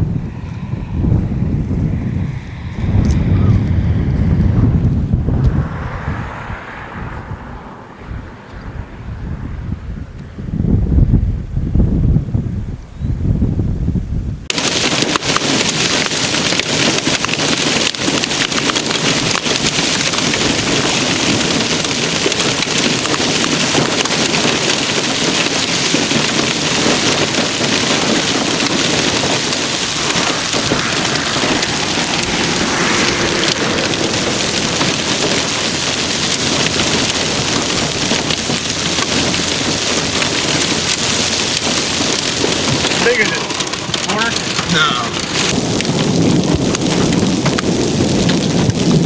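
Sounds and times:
hail and heavy rain: 14.5 - 49.0.

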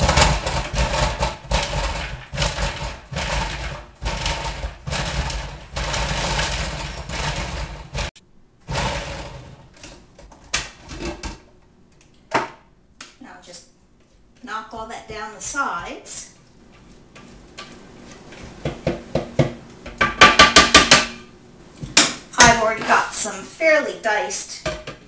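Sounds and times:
food processor chopping: 0.0 - 9.8.

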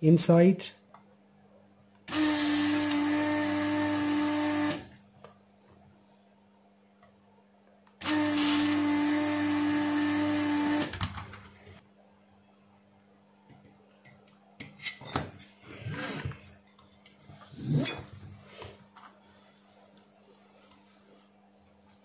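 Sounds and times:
desoldering vacuum pump running: 2.1 - 4.9, 8.0 - 11.1.

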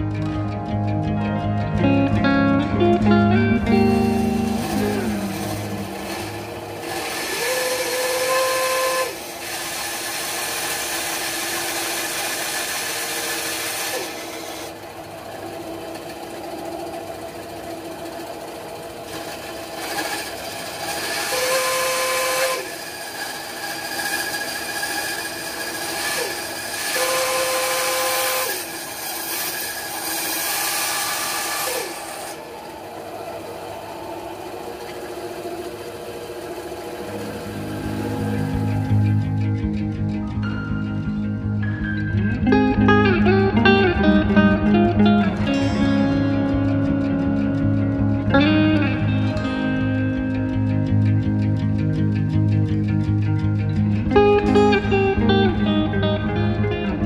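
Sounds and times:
bandsaw cutting wood: 3.3 - 40.2.

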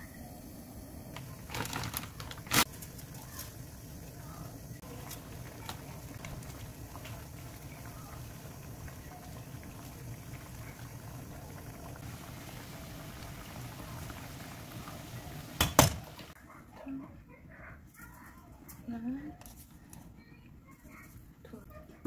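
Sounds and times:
water boiling and bubbling: 0.0 - 16.4.

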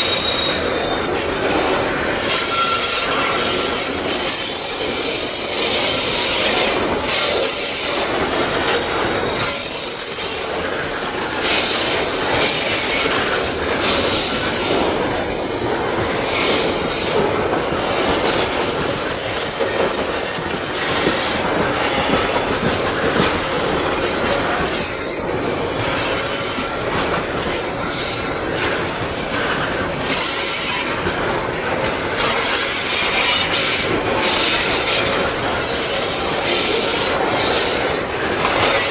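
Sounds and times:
high-pitched wheel squeals: 0.0 - 1.2, 2.3 - 7.1
train wheels rumbling on rail: 0.0 - 38.9.

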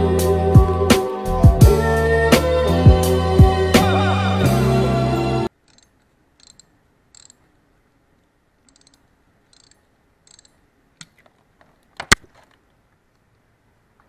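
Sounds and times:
socket wrench ratchet clicking: 5.6 - 7.5, 8.6 - 10.6.

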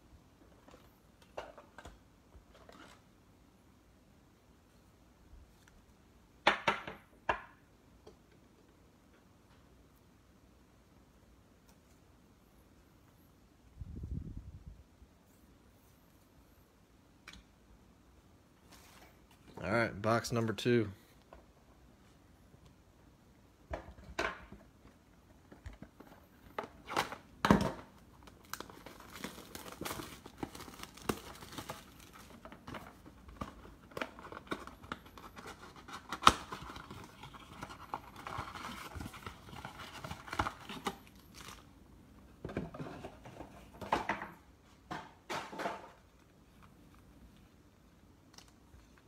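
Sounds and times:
cardboard tearing and crinkling: 28.4 - 32.7, 33.4 - 41.6.

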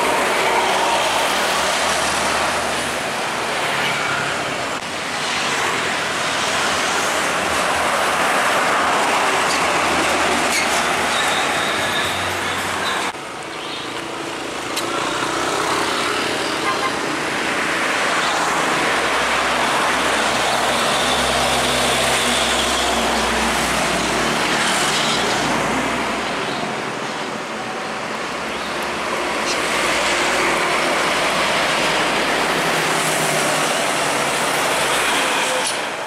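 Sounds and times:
heavy diesel trucks passing: 0.0 - 36.0
motorcycles in traffic: 0.0 - 36.0.

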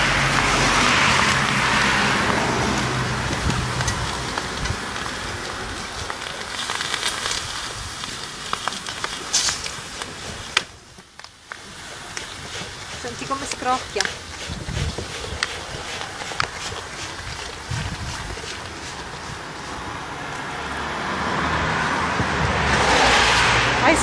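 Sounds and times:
hot ceramic hissing: 1.0 - 20.1
glaze crackling ticks and pops: 2.2 - 14.3.

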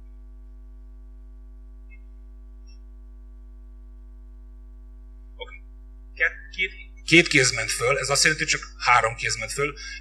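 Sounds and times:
electrical mains hum: 0.0 - 10.0
faint small ticks: 1.8 - 2.9.

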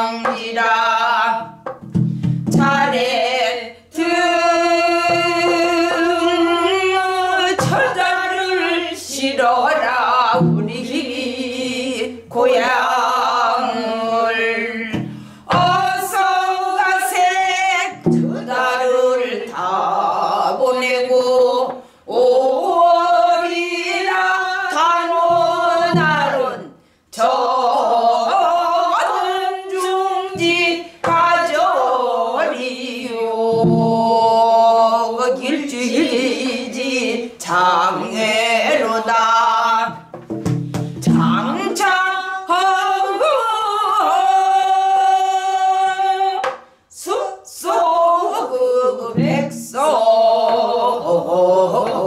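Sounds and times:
woman singing: 0.0 - 1.6, 2.4 - 52.0
barrel drum beats: 0.0 - 3.2, 4.7 - 8.8, 10.2 - 11.0, 14.8 - 16.8, 17.9 - 18.6, 25.1 - 26.5, 29.8 - 31.5, 33.4 - 34.4, 39.8 - 42.0, 49.2 - 50.6
woman breathing: 15.0 - 15.5.

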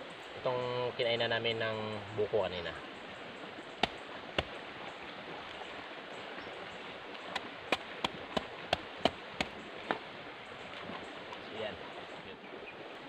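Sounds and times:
knife chopping coconut husk: 3.8 - 4.6, 7.3 - 9.6.

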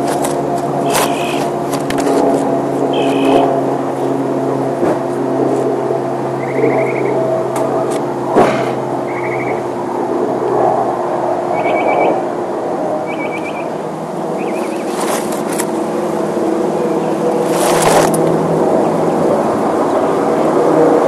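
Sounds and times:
mechanical drone with low hum: 0.0 - 21.0
trilled bird chirps: 2.9 - 3.4, 6.4 - 7.2, 9.1 - 9.7, 11.5 - 12.2, 13.0 - 13.8, 14.4 - 14.9.

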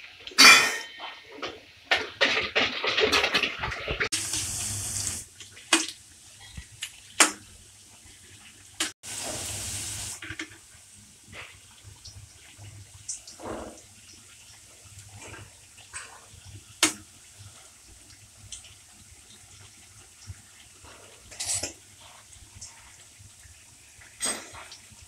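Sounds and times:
food deep-frying in oil: 1.7 - 25.0
steady hiss: 4.2 - 5.3, 9.1 - 11.5.

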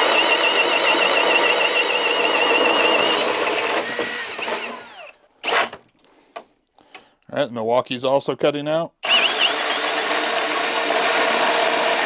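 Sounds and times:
drill motor whining under load: 0.0 - 5.8, 9.0 - 12.0.

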